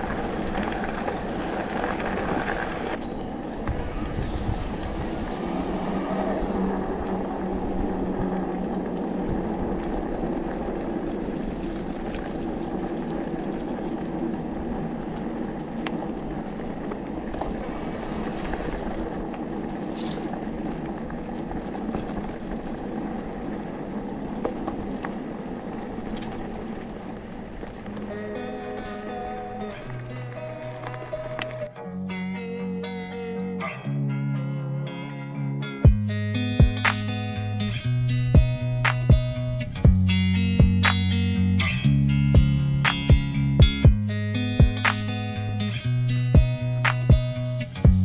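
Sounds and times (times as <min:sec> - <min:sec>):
bike tyres rumbling on dirt: 0:00.0 - 0:31.7, 0:37.6 - 0:48.0
wind on microphone: 0:00.0 - 0:31.7
bike clicks and knocks: 0:18.3 - 0:31.7, 0:46.4 - 0:48.0.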